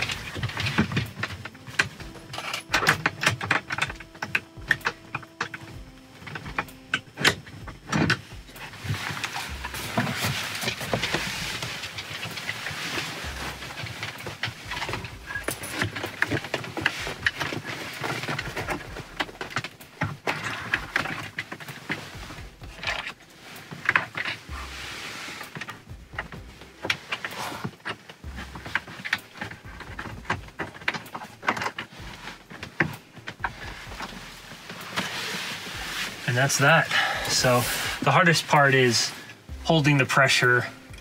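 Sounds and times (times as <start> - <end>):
bed frame knocking and rattling: 0.0 - 41.0
fabric rustling: 0.0 - 41.0.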